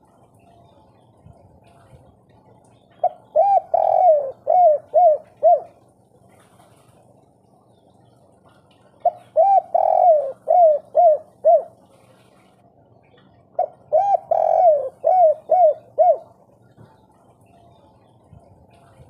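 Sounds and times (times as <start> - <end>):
dove cooing: 2.8 - 6.0, 9.0 - 12.0, 13.4 - 16.8.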